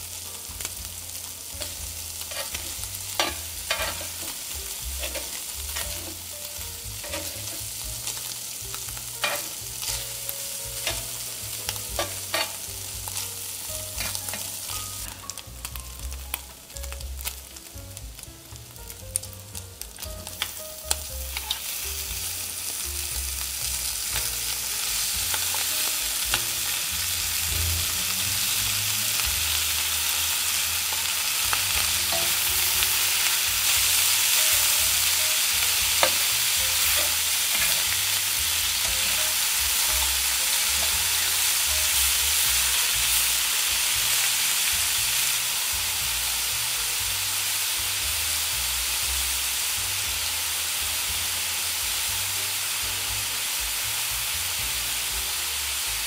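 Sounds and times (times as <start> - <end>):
meat sizzling in a pan: 0.0 - 56.0
utensil scraping a pan: 1.6 - 6.3, 7.0 - 8.2, 9.2 - 10.1, 11.9 - 12.7, 35.0 - 42.0.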